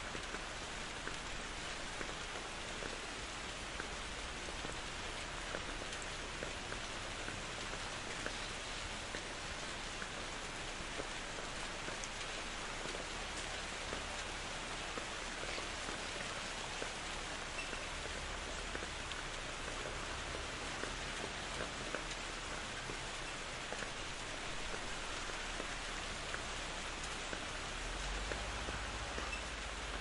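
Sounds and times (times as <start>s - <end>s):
rain drops pattering: 0.0s - 30.0s.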